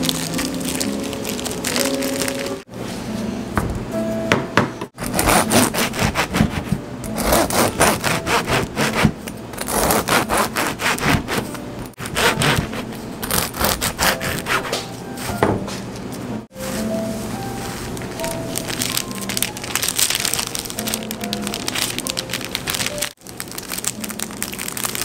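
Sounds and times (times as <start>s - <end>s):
bread knife sawing crusty bread: 5.0s - 14.8s
bread crust crackling: 18.0s - 25.0s.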